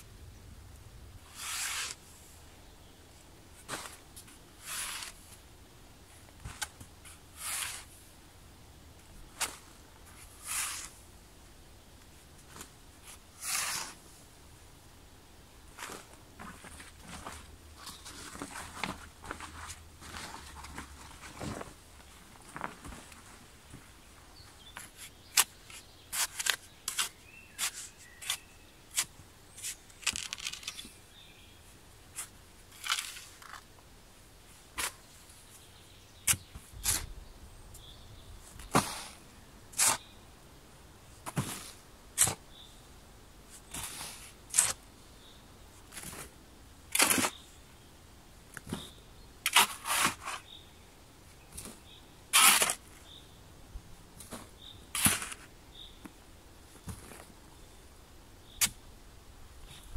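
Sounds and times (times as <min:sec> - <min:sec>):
shovel scraping into sandy soil: 0:01.3 - 0:02.0, 0:04.6 - 0:05.2, 0:07.1 - 0:08.0, 0:10.2 - 0:11.0, 0:13.0 - 0:14.0, 0:24.9 - 0:29.8, 0:36.2 - 0:37.1, 0:38.6 - 0:40.0, 0:43.7 - 0:44.8, 0:46.9 - 0:47.4, 0:49.4 - 0:50.4, 0:52.3 - 0:53.0, 0:54.2 - 0:55.5.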